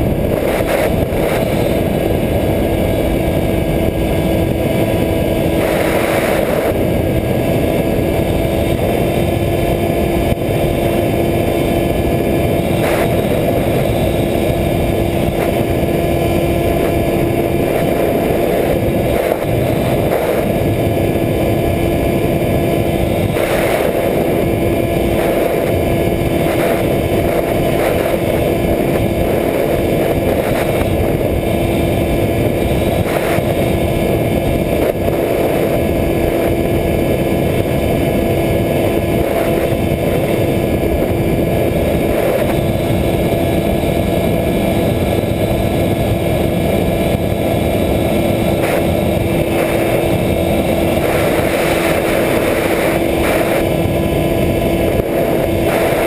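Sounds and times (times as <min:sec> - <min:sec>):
electric motor propeller hum: 0:00.0 - 0:56.0
rushing wind noise: 0:00.0 - 0:56.0.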